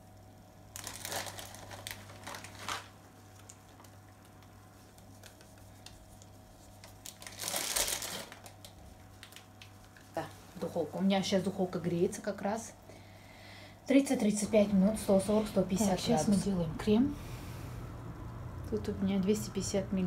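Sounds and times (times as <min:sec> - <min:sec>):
packet crinkling: 0:00.7 - 0:10.0.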